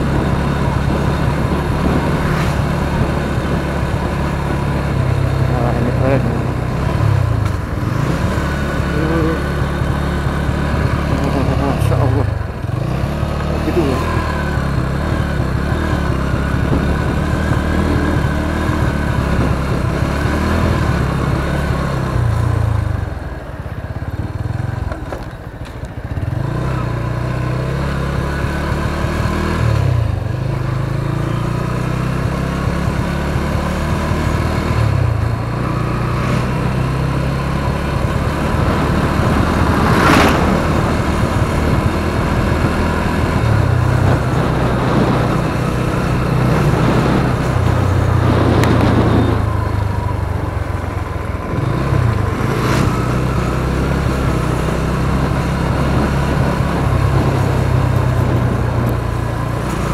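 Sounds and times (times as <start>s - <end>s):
motorcycle engine running: 0.0s - 59.9s
road and wind noise: 0.0s - 59.9s.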